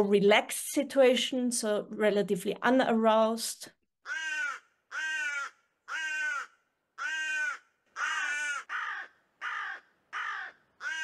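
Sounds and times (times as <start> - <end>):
crow cawing: 4.0 - 11.0.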